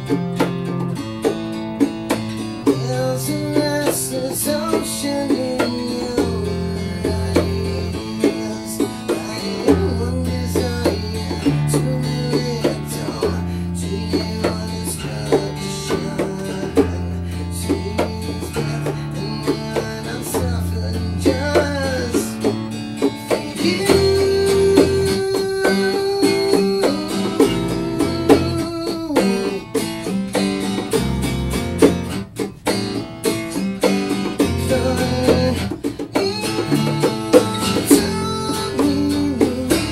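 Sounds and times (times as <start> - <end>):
electric bass notes: 0.0 - 25.9, 30.0 - 35.9
bongos slapped by hand: 0.0 - 39.9
strummed acoustic guitar: 0.0 - 39.9.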